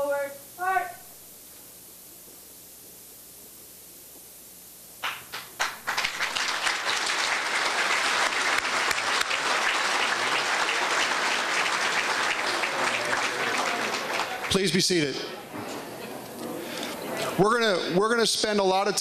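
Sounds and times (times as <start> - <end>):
crowd applauding: 5.0 - 15.6.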